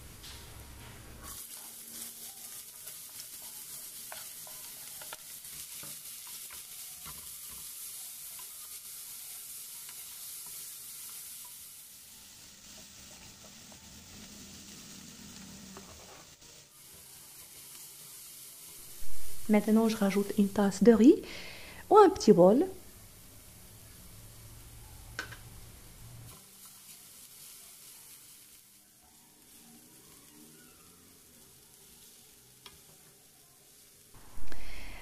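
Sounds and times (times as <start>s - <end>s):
vegetables sizzling in oil: 0.0s - 35.0s
spatula scraping pan: 1.2s - 11.6s.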